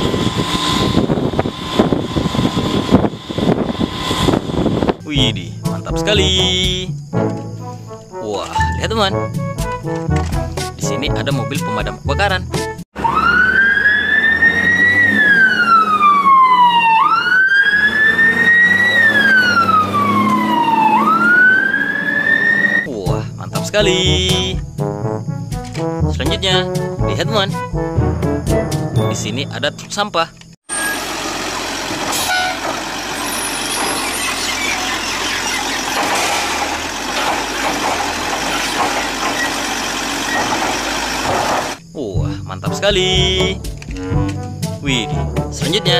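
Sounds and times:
truck engine rumble: 0:00.0 - 0:07.8, 0:08.6 - 0:23.4, 0:28.6 - 0:42.5
fire engine siren wailing: 0:13.0 - 0:22.9, 0:30.7 - 0:41.8
hydraulic arm lifting bin: 0:30.7 - 0:41.8.

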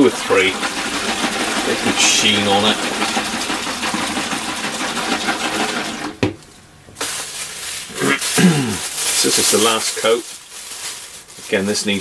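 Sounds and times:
rag rubbing and rustling: 0:07.0 - 0:12.0.

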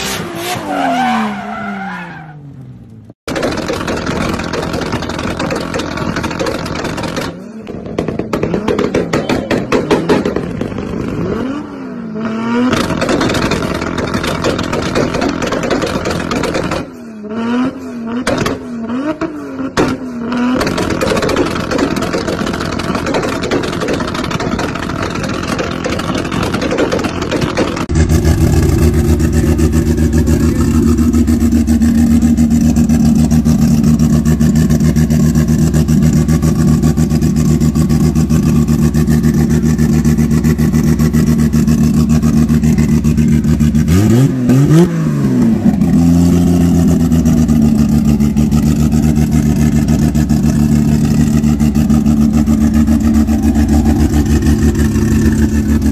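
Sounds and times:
quick engine rev: 0:20.2 - 0:55.9
car engine idling: 0:20.6 - 0:44.2, 0:45.6 - 0:55.9
car engine revving hard: 0:27.8 - 0:55.9.

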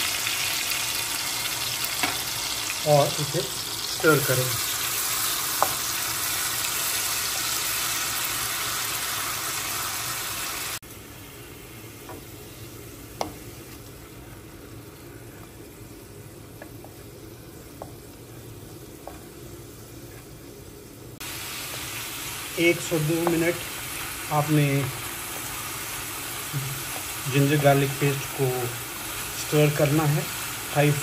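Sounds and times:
paste sizzling in hot oil: 0:00.0 - 0:14.1, 0:21.2 - 0:31.0
spatula tapping a pan: 0:05.6 - 0:05.8, 0:13.2 - 0:13.4, 0:17.8 - 0:18.0.

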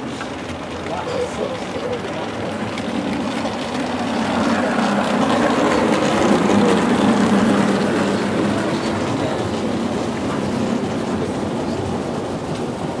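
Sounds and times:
model train motor hum and rumble: 0:00.0 - 0:13.0.

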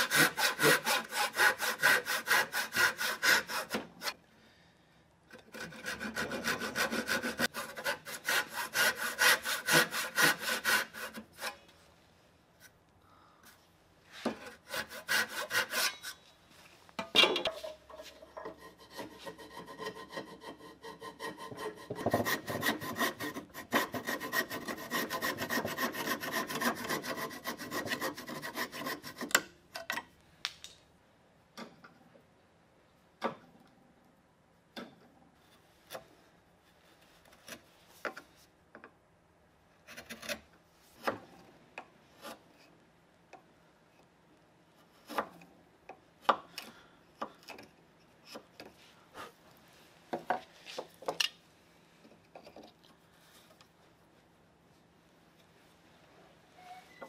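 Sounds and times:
hand saw cutting wood: 0:00.0 - 0:04.2, 0:05.4 - 0:11.6, 0:14.2 - 0:16.2, 0:18.4 - 0:29.5
thin saw with duller strokes: 0:00.0 - 0:04.2, 0:05.6 - 0:11.6, 0:14.1 - 0:16.2, 0:18.5 - 0:29.3.

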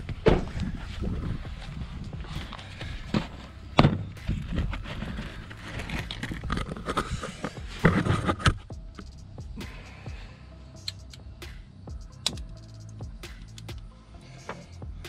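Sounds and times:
camera handling knocks and thuds: 0:03.1 - 0:04.8.

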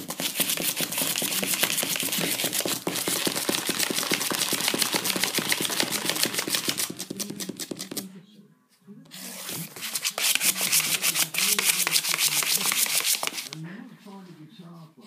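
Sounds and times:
puppy claws tapping on cardboard: 0:00.0 - 0:08.1, 0:10.1 - 0:13.6.

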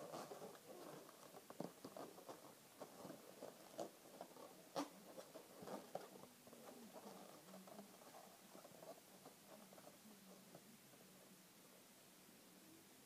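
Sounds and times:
balloons rubbing and squeaking: 0:00.0 - 0:10.0.

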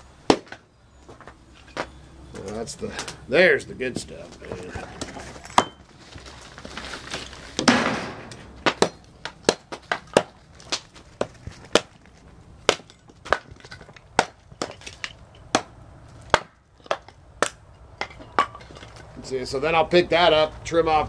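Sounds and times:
chopping into charred wood: 0:00.3 - 0:00.6, 0:07.6 - 0:12.0, 0:12.6 - 0:18.9
crumbling crunch: 0:04.0 - 0:15.4.

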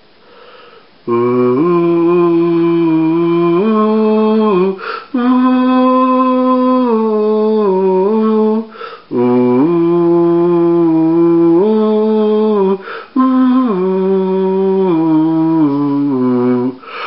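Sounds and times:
person breathing in: 0:00.2 - 0:00.9, 0:04.8 - 0:05.2, 0:08.7 - 0:09.1, 0:12.8 - 0:13.2, 0:16.8 - 0:17.0
person humming a slow tune: 0:01.1 - 0:17.0.

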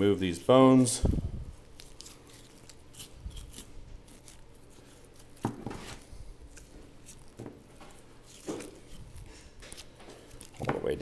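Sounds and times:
knife scraping along bones: 0:01.7 - 0:07.4, 0:08.0 - 0:11.0.

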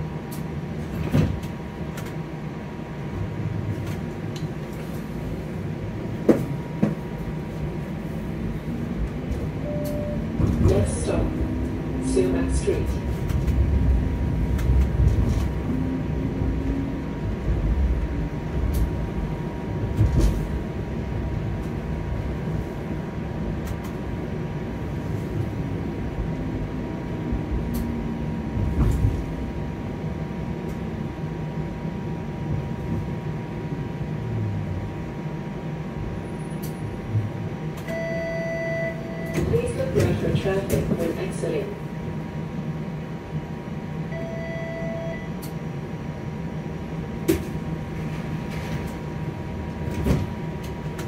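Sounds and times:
streetcar wheels rumbling on rails: 0:00.0 - 0:38.0, 0:38.8 - 0:44.2, 0:45.2 - 0:51.0
electronic tone: 0:09.6 - 0:10.4, 0:37.9 - 0:39.4, 0:44.1 - 0:45.3.

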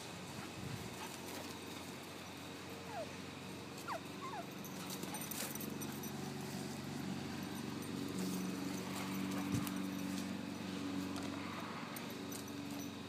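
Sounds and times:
steady low hum: 0:00.0 - 0:13.0
dogs whining and yipping: 0:02.8 - 0:03.2, 0:03.8 - 0:06.2.

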